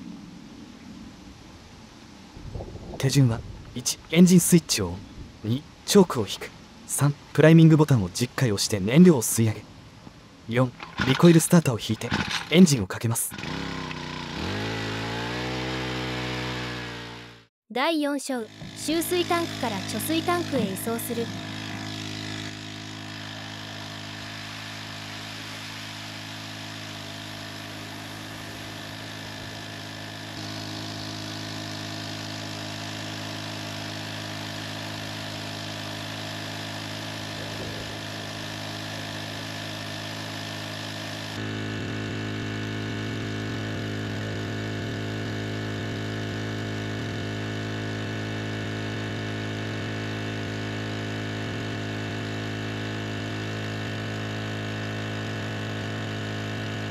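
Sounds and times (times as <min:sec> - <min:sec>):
engine pump running: 0:10.6 - 0:12.7, 0:13.3 - 0:17.2, 0:18.5 - 0:56.9.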